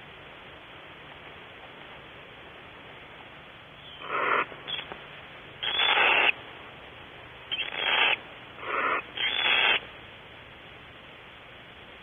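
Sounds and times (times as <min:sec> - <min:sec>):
steady background hiss: 0:00.0 - 0:12.0
owl hissing screeches: 0:03.9 - 0:04.9, 0:05.6 - 0:06.4, 0:07.5 - 0:09.8.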